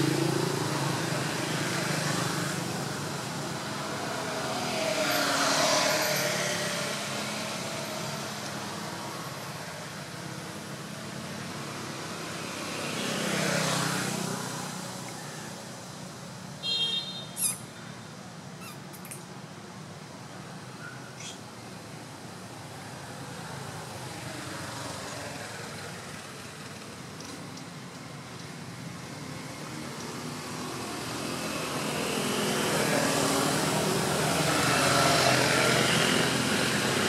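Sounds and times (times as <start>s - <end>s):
vehicles passing: 0.0s - 37.0s
steady outdoor hum: 13.8s - 37.0s.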